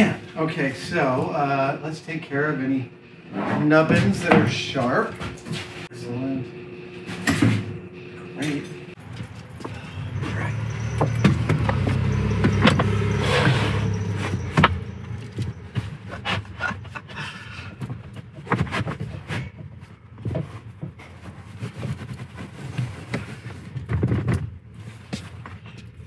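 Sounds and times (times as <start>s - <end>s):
low hum: 0.0s - 18.4s
rubbing and scraping: 10.2s - 26.0s.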